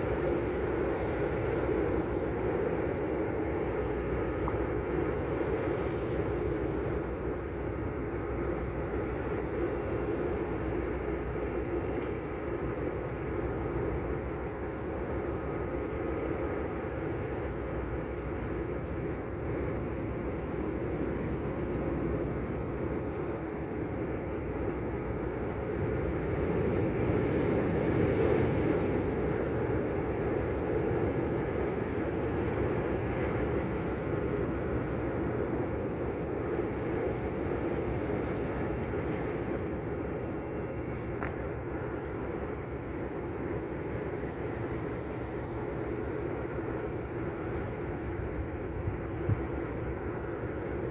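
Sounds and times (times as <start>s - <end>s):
small waves on rocky shore: 0.0s - 11.1s
wind rumble on microphone: 0.0s - 50.9s.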